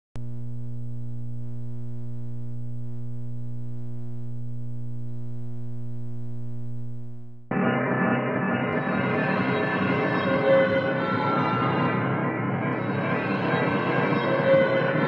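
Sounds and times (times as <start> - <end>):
low buzzy electronic hum: 0.2 - 7.5.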